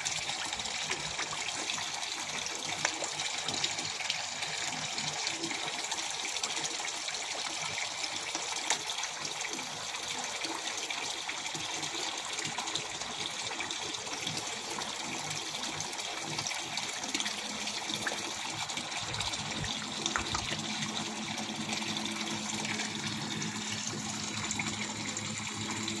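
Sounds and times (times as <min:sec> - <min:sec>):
water pouring into pond: 0:00.0 - 0:26.0
fish splashing at surface: 0:17.9 - 0:21.2.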